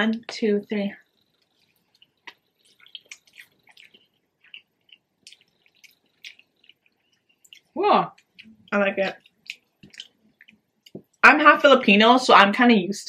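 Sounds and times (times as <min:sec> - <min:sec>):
close-miked wet chewing: 0:01.0 - 0:11.2.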